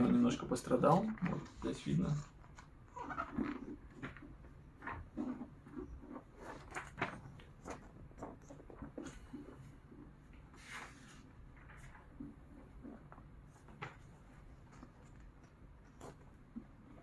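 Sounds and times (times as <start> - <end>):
magazine pages rustling: 6.1 - 9.5
paper swishing: 10.5 - 12.0.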